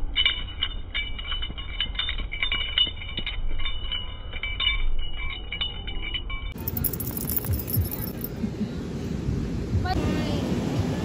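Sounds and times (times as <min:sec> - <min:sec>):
small bell ringing: 0:00.0 - 0:08.4.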